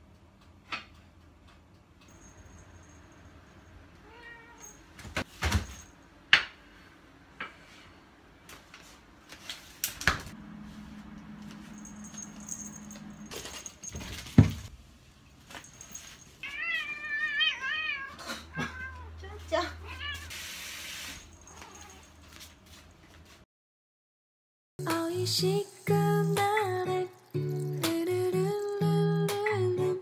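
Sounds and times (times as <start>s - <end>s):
cat meowing: 4.0s - 4.8s, 16.4s - 19.2s, 19.8s - 20.3s
low hum: 10.3s - 13.9s.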